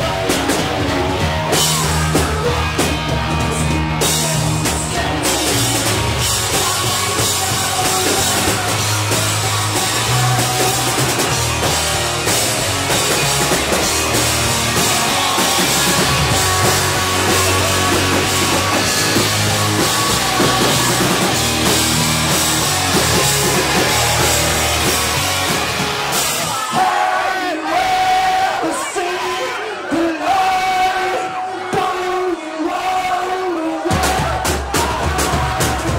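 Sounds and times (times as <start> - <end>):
electric bass: 0.0 - 26.6
distorted electric guitar: 0.0 - 26.8
drum kit: 0.0 - 27.1, 33.8 - 35.9
crowd cheering: 0.0 - 35.9.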